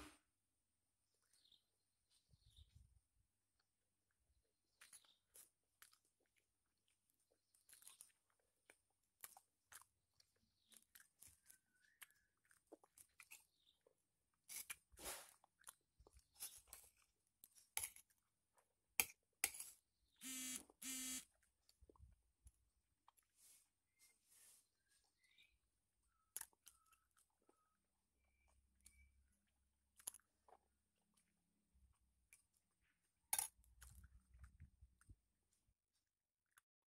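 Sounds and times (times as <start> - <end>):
chewing: 4.7 - 18.7, 26.0 - 31.3.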